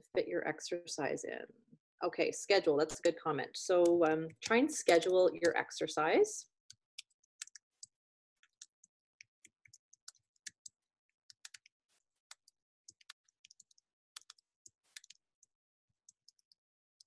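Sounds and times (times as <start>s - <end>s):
keyboard typing: 6.7s - 11.7s, 12.3s - 15.5s.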